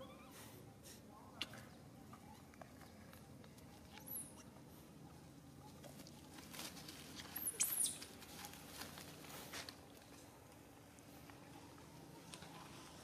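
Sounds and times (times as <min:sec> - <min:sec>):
monkeys rustling through leaves: 0:06.2 - 0:09.8.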